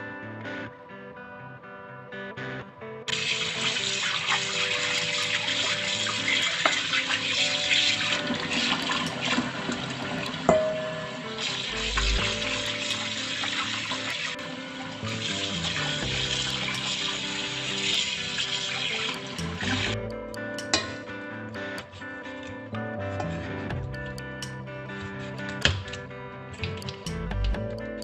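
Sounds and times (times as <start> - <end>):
guitar background music: 0.0 - 28.0
tap water running into bowl: 3.1 - 20.0.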